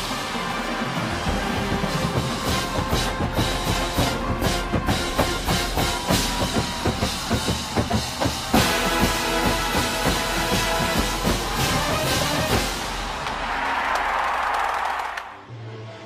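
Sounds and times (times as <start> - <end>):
marching drumline: 0.0 - 13.6
brass sustained chords: 8.6 - 13.1.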